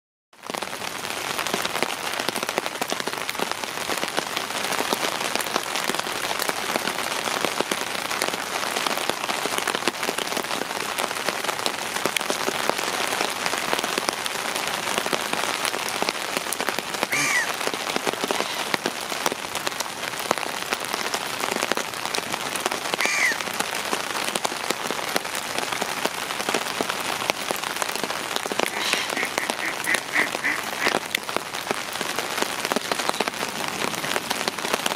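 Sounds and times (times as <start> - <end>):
heavy rain on water: 0.3 - 34.9
short calls: 17.1 - 17.6, 23.0 - 23.4.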